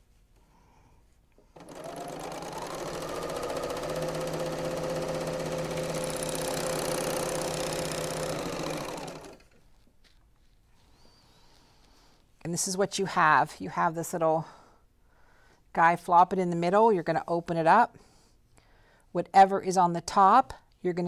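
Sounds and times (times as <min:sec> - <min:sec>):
serger stitching rattle: 0:01.5 - 0:09.8.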